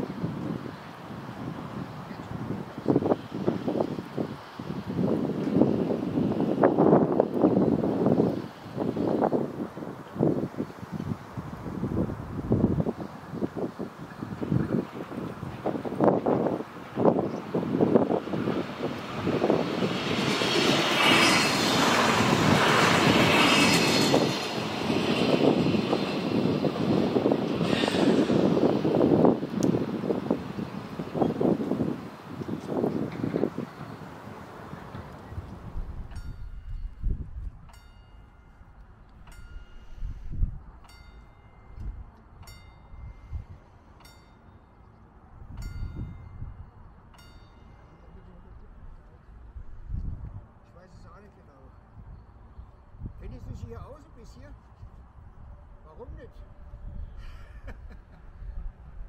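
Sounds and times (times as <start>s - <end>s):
train passing: 0.0s - 57.0s
level-crossing warning bell: 37.7s - 43.2s, 44.0s - 44.8s, 45.6s - 48.5s.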